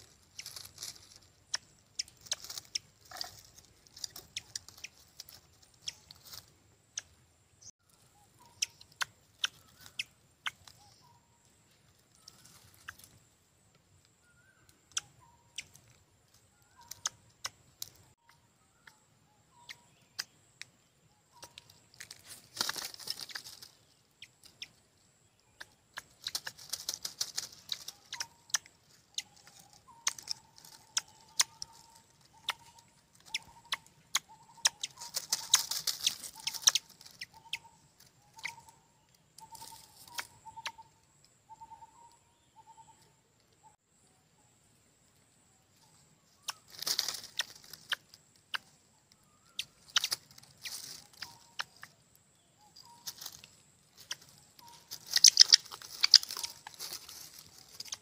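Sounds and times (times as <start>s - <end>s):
short clipped bird calls: 0.0s - 11.5s, 14.2s - 43.8s, 45.8s - 58.0s
wing flapping and rustling: 21.9s - 23.8s, 26.0s - 28.4s, 34.8s - 37.3s, 46.6s - 48.0s, 53.0s - 58.0s
sharp clicks: 29.9s - 37.4s.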